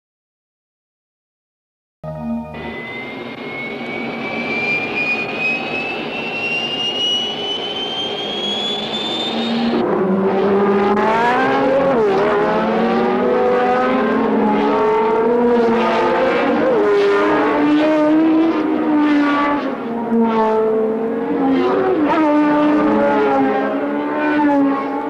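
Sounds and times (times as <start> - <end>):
jet aircraft high whine: 2.1 - 10.1
racing car engines revving: 2.6 - 25.0.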